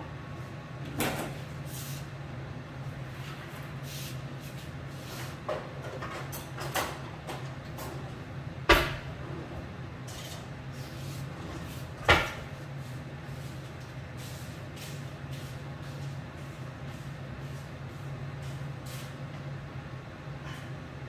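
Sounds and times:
steady low hum: 0:00.0 - 0:21.0
kitchen knocks and clunks: 0:08.7 - 0:09.1, 0:12.0 - 0:12.5.

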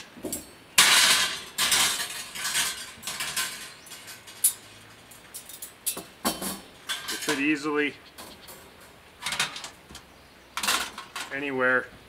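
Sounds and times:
wire oven rack rattling: 0:00.4 - 0:09.8.

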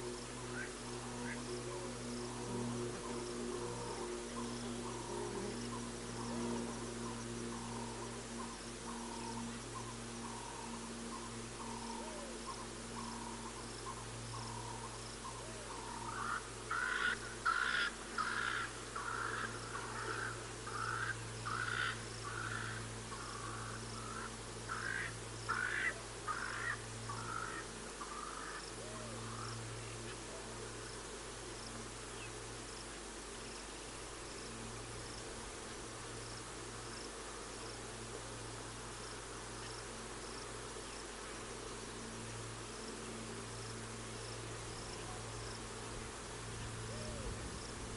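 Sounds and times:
insects chirping: 0:00.0 - 0:47.9
low hum: 0:00.0 - 0:47.9
bird calling repeated notes: 0:07.0 - 0:29.5.

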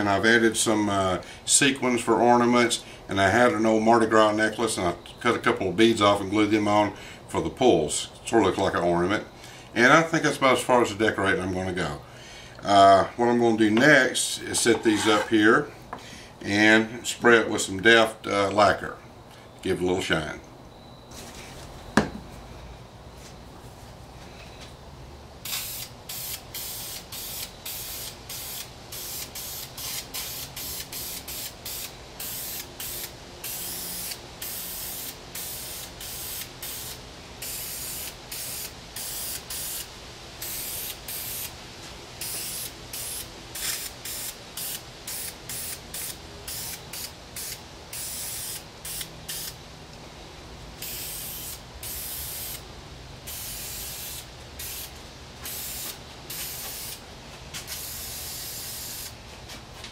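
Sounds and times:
aerosol can spraying: 0:25.5 - 0:41.5, 0:42.2 - 0:49.6, 0:50.8 - 0:52.6, 0:53.3 - 0:57.0, 0:57.6 - 0:59.2.

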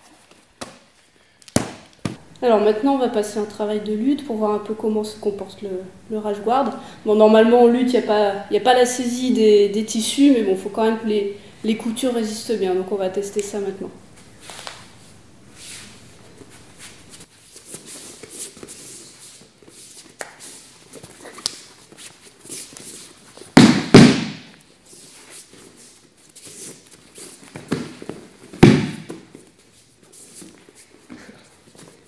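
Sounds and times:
bare feet shuffling on mats: 0:14.1 - 0:32.0
bodies slamming onto mat: 0:23.6 - 0:24.5, 0:28.6 - 0:29.3.

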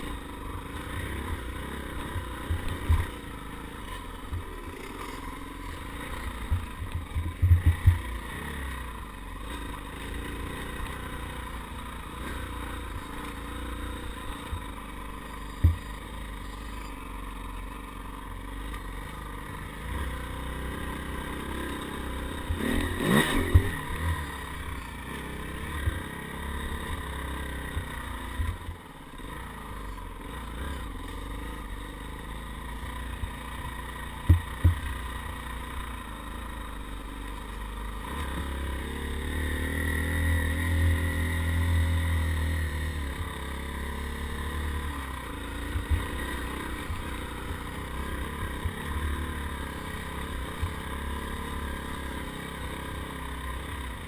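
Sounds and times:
dirt bike engine running: 0:00.0 - 0:54.0
bike thumps and rattles: 0:06.5 - 0:08.1, 0:15.6 - 0:15.8, 0:34.2 - 0:35.0.

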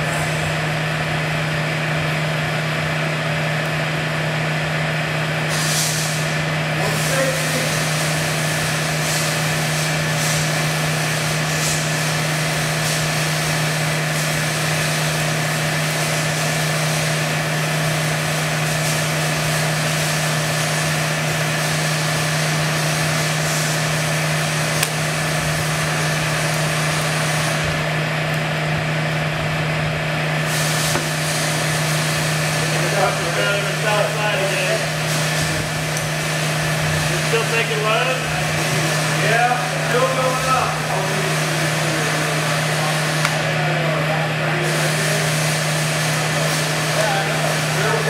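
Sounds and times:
hydraulic machine hum: 0:00.0 - 0:48.0
pump hiss: 0:05.3 - 0:28.6, 0:30.1 - 0:48.0.

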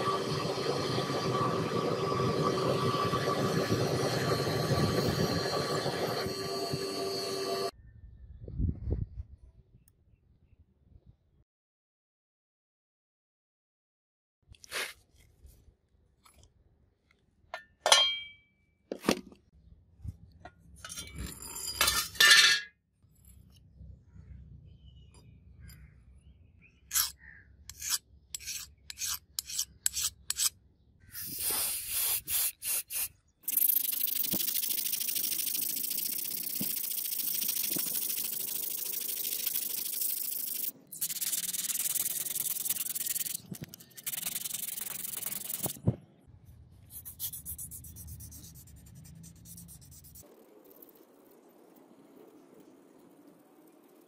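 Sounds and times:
sandpaper rubbing on steel blade: 0:26.9 - 0:30.6, 0:31.2 - 0:45.8, 0:46.9 - 0:50.3.

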